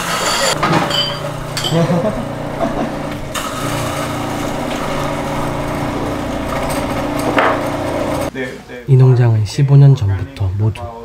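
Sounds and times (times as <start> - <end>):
electric coffee grinder running: 0.0 - 8.3.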